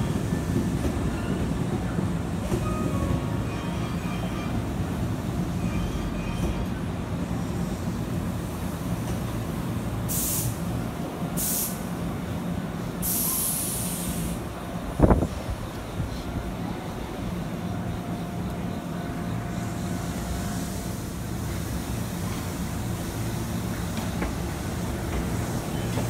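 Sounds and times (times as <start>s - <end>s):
electric train rumbling: 0.0s - 26.0s
air hissing: 10.1s - 10.7s, 11.4s - 11.9s, 13.0s - 14.5s.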